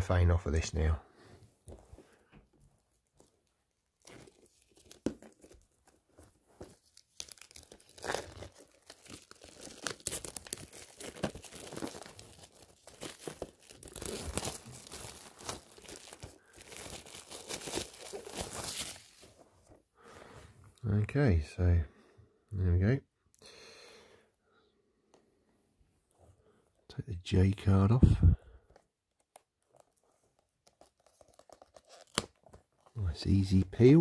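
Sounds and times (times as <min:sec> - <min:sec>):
plastic wrap crackling and rustling: 0:01.8 - 0:19.8, 0:28.8 - 0:33.0.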